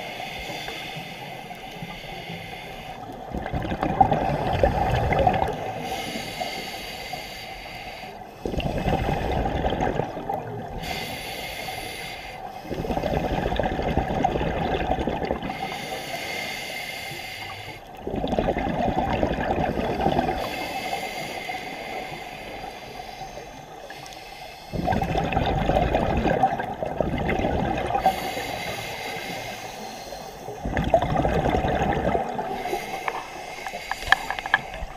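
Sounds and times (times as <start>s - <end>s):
regulator inhale hiss: 0.0s - 3.2s, 4.3s - 9.2s, 10.6s - 13.0s, 15.5s - 18.0s, 20.2s - 25.0s, 27.9s - 30.6s, 32.3s - 34.9s
exhaled air bubbling: 0.0s - 7.3s, 8.4s - 16.5s, 17.3s - 34.9s.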